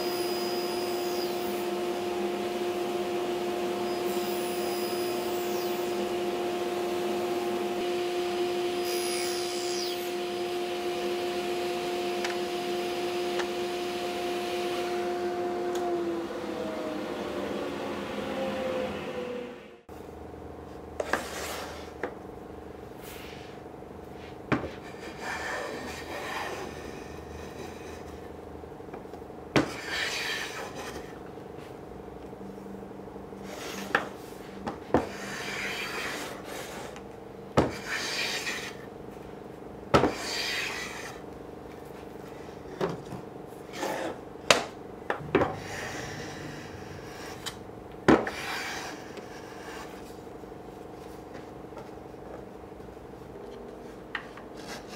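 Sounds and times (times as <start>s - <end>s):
hand plane scraping wood: 29.7s - 31.1s, 35.0s - 37.0s, 37.8s - 38.8s, 48.2s - 50.2s.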